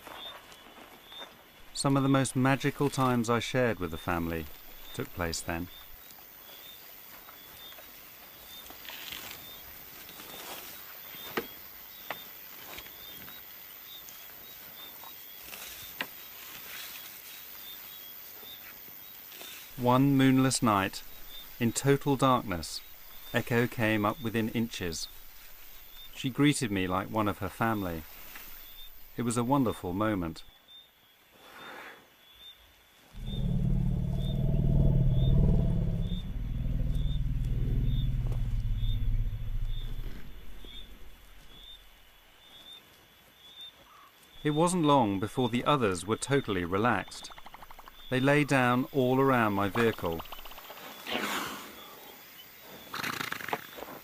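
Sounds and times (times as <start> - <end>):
insects chirping: 0.0 - 31.4, 32.0 - 54.0
elephant rumbling: 1.7 - 6.0, 19.7 - 29.3, 33.2 - 42.2, 46.2 - 50.7
steady hiss: 8.8 - 30.5
faint high chirp: 33.2 - 42.8.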